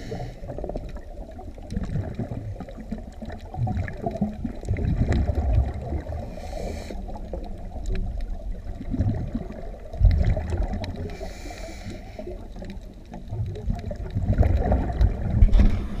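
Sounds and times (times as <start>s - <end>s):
exhaled bubbles gurgling: 0.0s - 16.0s
regulator hissing on inhalation: 6.3s - 7.1s, 11.1s - 12.3s.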